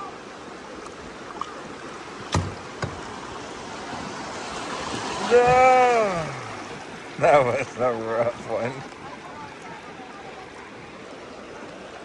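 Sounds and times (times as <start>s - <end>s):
river rapids rushing: 0.0s - 12.0s
sharp knock on kayak: 2.3s - 3.1s.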